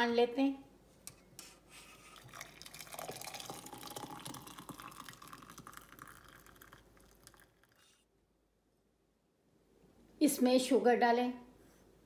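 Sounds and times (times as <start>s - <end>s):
tea pouring through strainer: 1.8s - 8.0s.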